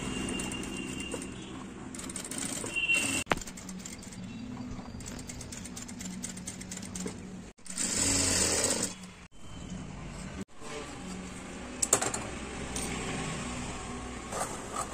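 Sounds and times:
sewing machine motor hum: 0:07.7 - 0:09.0.

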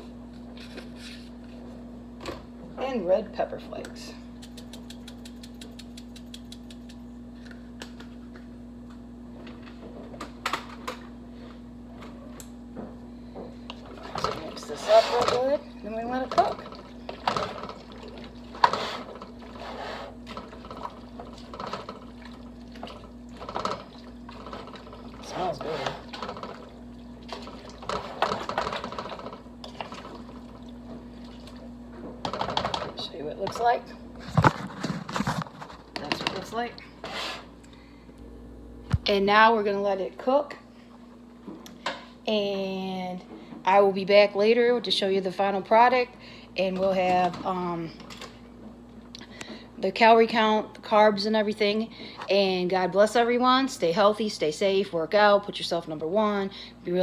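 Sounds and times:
steady low hum: 0:00.0 - 0:57.0
spice flakes clicking: 0:04.4 - 0:07.0.

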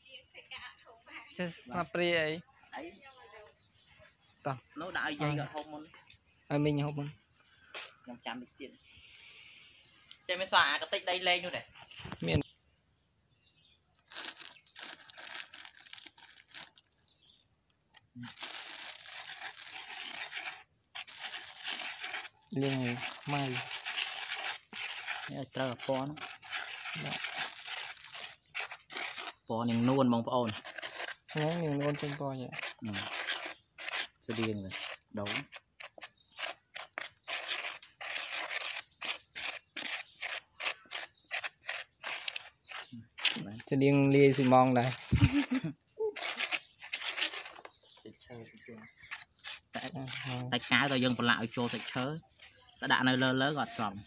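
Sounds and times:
plastic bags crinkling: 0:14.0 - 0:17.0, 0:18.2 - 0:29.4
stick scraping through damp sawdust: 0:18.0 - 0:45.6, 0:46.2 - 0:47.8, 0:48.8 - 0:54.0.

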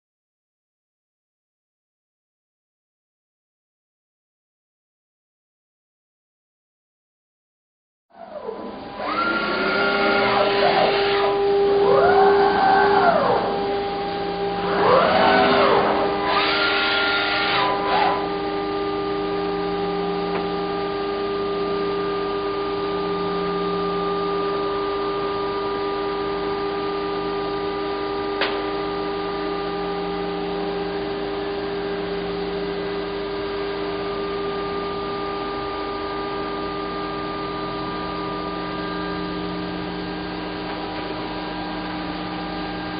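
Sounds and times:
machine drives whining: 0:08.1 - 0:18.5
steady machine whine and hum: 0:08.1 - 0:42.9.

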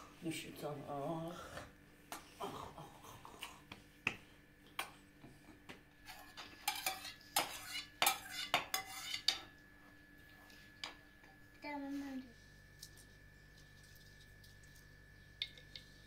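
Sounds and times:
metal spoon scraping a bowl: 0:06.0 - 0:09.5.

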